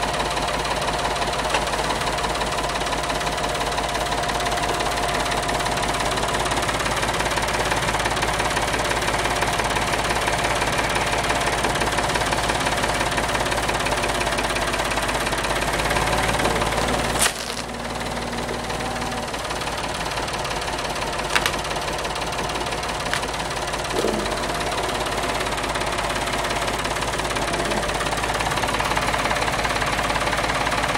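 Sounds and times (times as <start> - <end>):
tractor engine running: 0.0 - 30.9.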